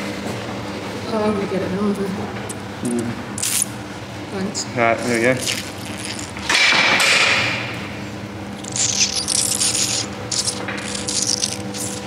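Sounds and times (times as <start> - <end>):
hoof knife scraping hoof: 8.6 - 12.0.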